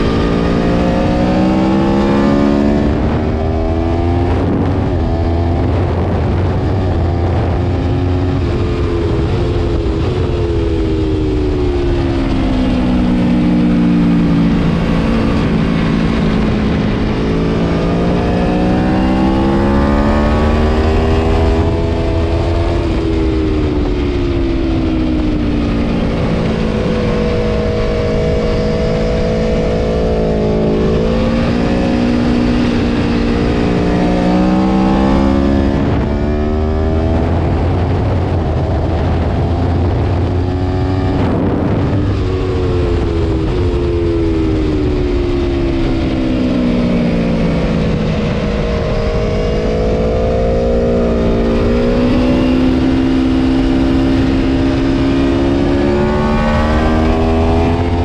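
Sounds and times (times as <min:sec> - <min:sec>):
motorcycle engine revving: 0:00.0 - 0:58.0
wind rush: 0:00.0 - 0:58.0.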